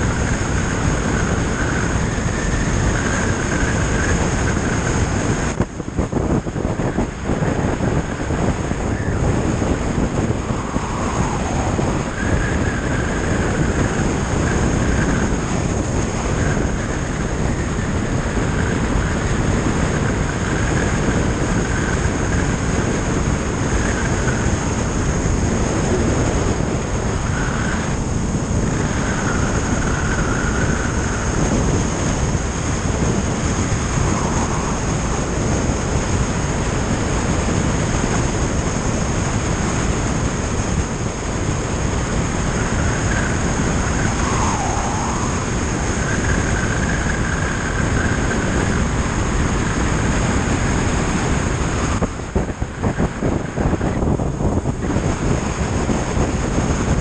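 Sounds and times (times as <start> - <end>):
faint high whine: 0.0 - 22.6, 23.6 - 37.6, 42.0 - 48.9
road noise: 0.0 - 57.0
wind rushing over microphone: 0.0 - 57.0.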